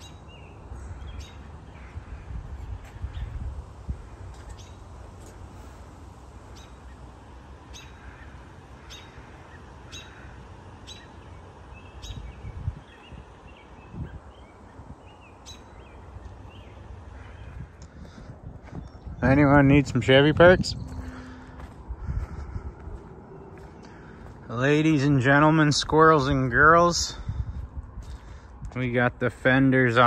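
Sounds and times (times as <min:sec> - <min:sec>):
faint birds calling: 0:00.0 - 0:30.0
steady low rumble: 0:00.0 - 0:30.0
bird chirping sharply: 0:10.8 - 0:17.6.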